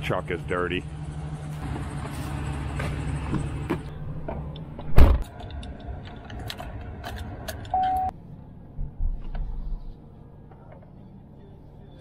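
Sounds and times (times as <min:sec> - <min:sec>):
car door thumping shut: 0:04.9 - 0:05.2.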